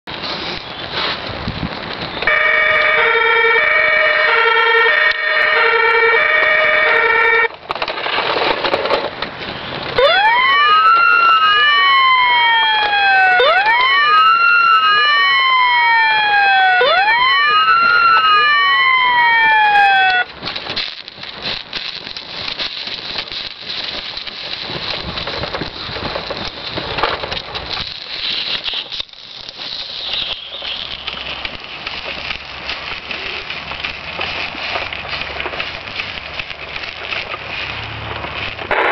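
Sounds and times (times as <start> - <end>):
uneven crackling noise: 0.0 - 38.9
two-tone electronic siren: 2.2 - 7.5, 10.0 - 20.3
wailing siren: 2.2 - 7.5, 10.0 - 20.3.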